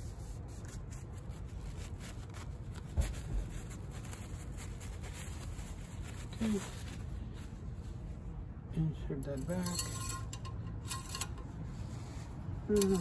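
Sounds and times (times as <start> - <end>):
paper towel rustling: 0.0 - 8.4
low background rumble: 0.0 - 13.0.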